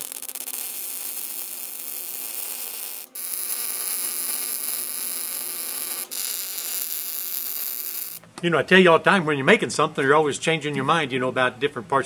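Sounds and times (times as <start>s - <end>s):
welding arc noise: 0.0s - 8.2s.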